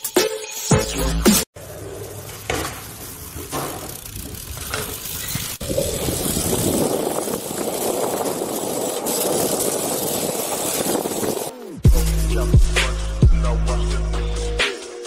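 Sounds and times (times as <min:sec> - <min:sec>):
bike tyre rolling on concrete: 0:01.6 - 0:11.7.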